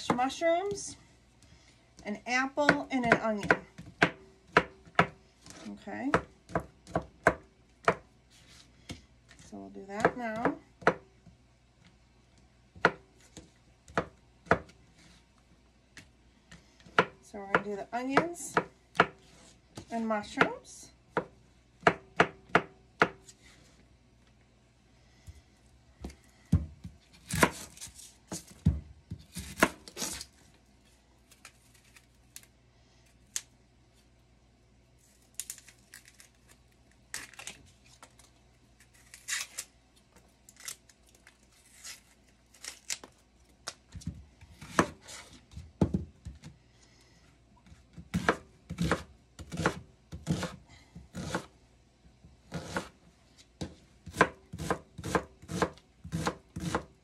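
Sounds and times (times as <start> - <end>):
knife chopping onion: 2.6 - 8.1, 16.8 - 23.3, 26.0 - 30.2, 43.9 - 46.5, 47.6 - 51.5, 52.5 - 53.0, 53.6 - 57.0
onion skin crackling and tearing: 31.2 - 32.5, 35.0 - 39.8, 40.4 - 43.9.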